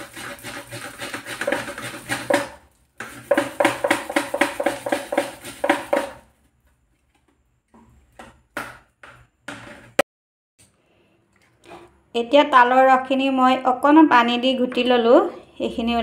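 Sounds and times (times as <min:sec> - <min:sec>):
fruit pulp scraped on metal grater: 0:00.0 - 0:06.2.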